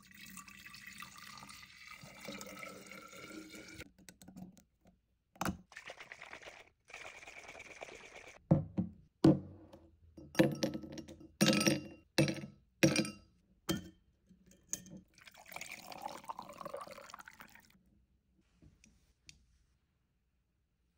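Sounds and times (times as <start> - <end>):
liquid pouring into glass with ice: 0.0 - 3.8, 15.1 - 17.7
glass clinks and knocks: 10.2 - 15.1.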